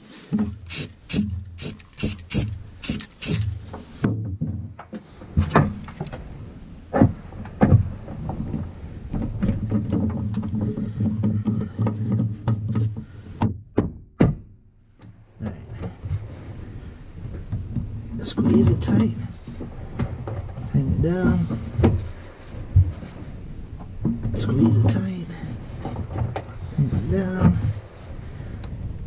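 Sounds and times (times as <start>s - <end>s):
low rumbling handling noise: 0.0s - 29.0s
sharp scrapes in metal holes: 0.6s - 3.5s.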